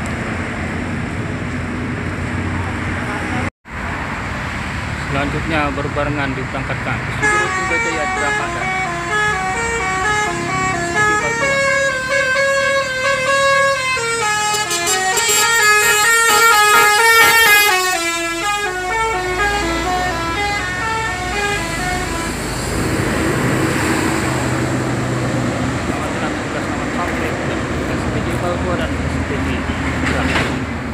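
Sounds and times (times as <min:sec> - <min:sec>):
bus engine running: 0:04.8 - 0:30.9
musical air horns melody: 0:07.2 - 0:22.8.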